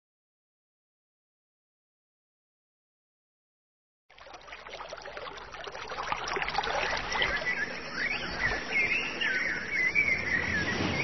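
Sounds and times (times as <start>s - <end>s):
water washing: 4.1s - 8.5s.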